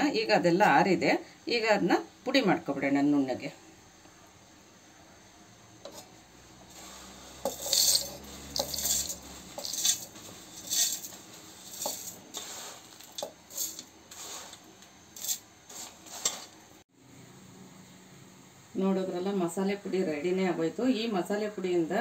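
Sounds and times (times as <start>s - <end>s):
spices rattling into metal jar: 7.4s - 12.4s, 13.0s - 13.9s, 15.2s - 15.4s.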